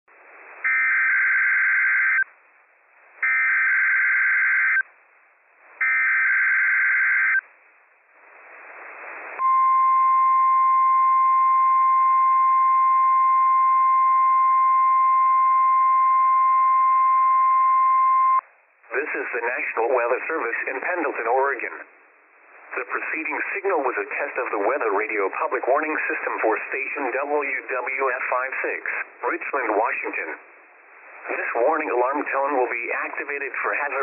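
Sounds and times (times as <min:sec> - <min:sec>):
steady warning alarm tone: 0:03.2 - 0:04.8, 0:05.8 - 0:07.4
radio hiss: 0:08.2 - 0:09.5, 0:18.8 - 0:34.0.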